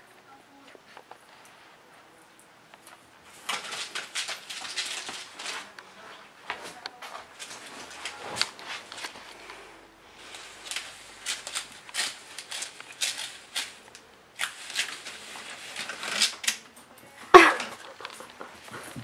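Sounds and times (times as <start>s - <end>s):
claws scrabbling on wooden floor: 2.8s - 16.8s.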